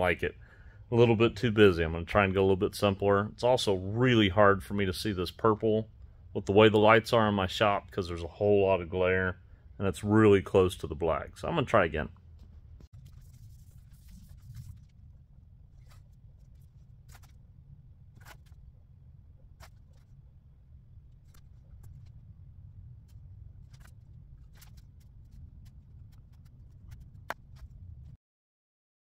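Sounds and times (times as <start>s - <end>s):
low shop hum: 0.0s - 28.2s.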